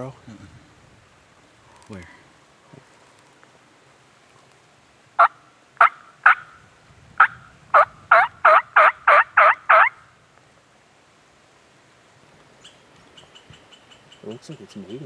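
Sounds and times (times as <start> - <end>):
bird calling: 5.2 - 6.6, 7.2 - 10.2, 12.4 - 15.0.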